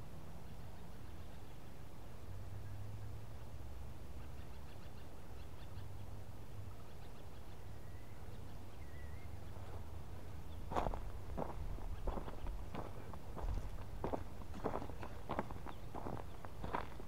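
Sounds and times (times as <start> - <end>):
low background rumble: 5.1 - 17.0.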